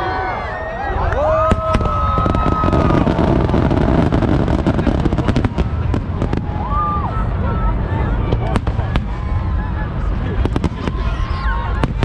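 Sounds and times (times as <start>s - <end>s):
low rumble: 1.0s - 12.0s
fireworks bursting and crackling: 1.3s - 12.0s.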